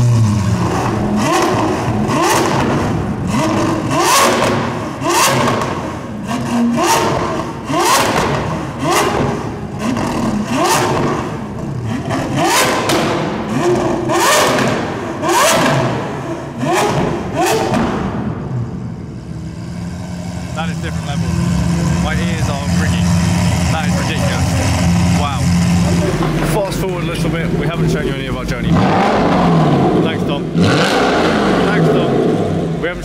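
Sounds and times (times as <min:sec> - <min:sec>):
car engine revving: 0:00.0 - 0:33.0
exhaust cracks and bangs: 0:00.5 - 0:18.6.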